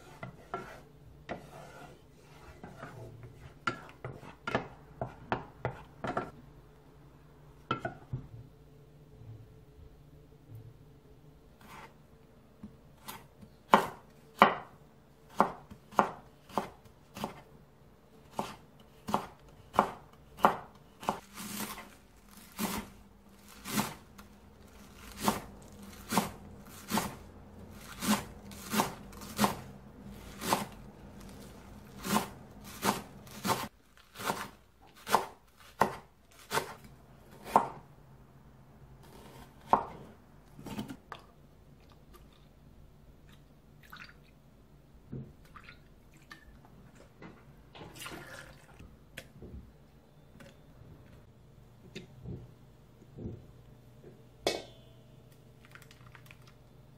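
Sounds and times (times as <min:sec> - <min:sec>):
knife chopping on wooden board: 0:15.3 - 0:17.4, 0:18.3 - 0:21.8, 0:25.1 - 0:27.2, 0:27.9 - 0:30.8, 0:32.0 - 0:36.8.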